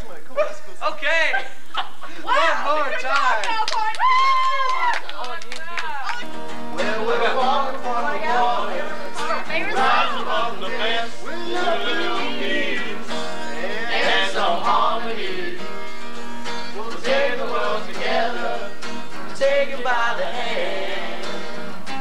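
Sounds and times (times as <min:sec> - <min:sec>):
acoustic guitar strumming: 0:06.1 - 0:22.0
people singing: 0:06.7 - 0:22.0.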